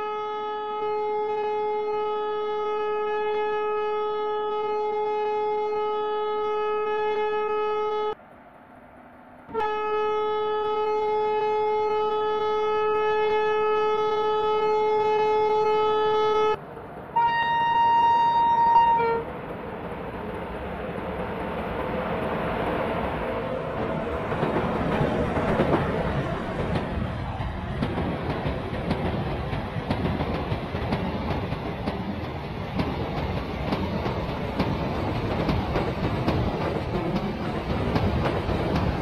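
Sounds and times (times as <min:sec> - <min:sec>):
train horn blasts: 0:00.0 - 0:08.2, 0:09.5 - 0:19.3
train rumble: 0:08.1 - 0:39.0.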